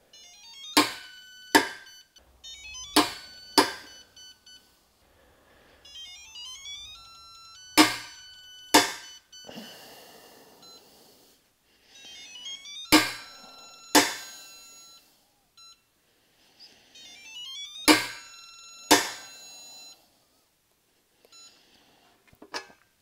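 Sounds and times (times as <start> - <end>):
electronic beep tones: 0.2 - 4.8, 5.8 - 10.8, 12.0 - 15.0, 17.0 - 20.0.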